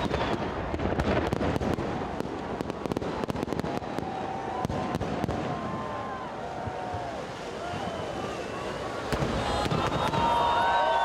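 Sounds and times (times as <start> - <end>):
wavering firework whistles: 0.0 - 0.8, 3.7 - 11.0
fireworks bursting with cracks: 0.0 - 11.0.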